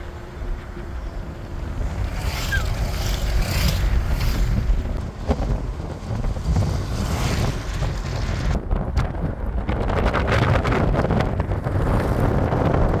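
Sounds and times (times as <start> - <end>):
road rumble: 0.0 - 13.0
wind buffeting microphone: 0.0 - 13.0.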